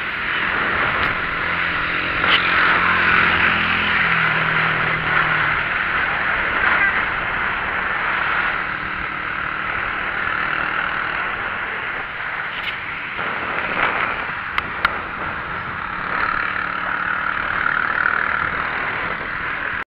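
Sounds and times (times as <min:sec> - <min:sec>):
bicycle road and wind noise: 0:00.0 - 0:19.8.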